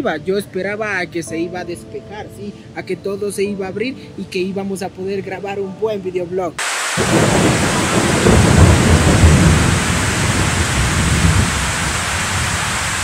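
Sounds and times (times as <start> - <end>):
heavy rain: 6.6 - 13.0.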